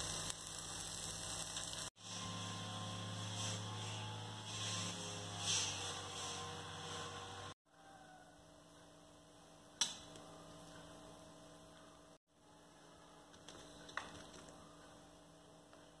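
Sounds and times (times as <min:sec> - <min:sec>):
electrical mains hum: 0:00.0 - 0:03.2.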